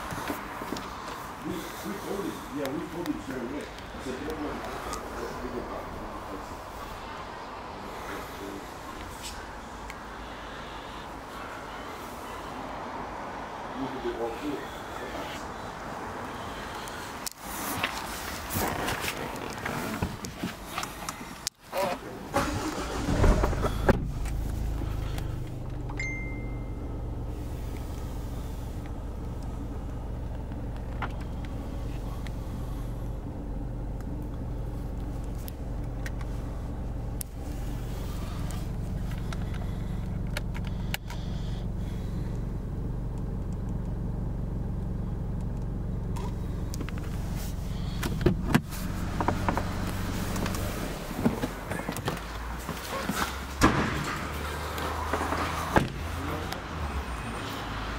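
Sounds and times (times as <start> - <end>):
car engine starting and idling: 0.0 - 13.0, 13.6 - 57.9
short high beep: 26.0 - 26.8.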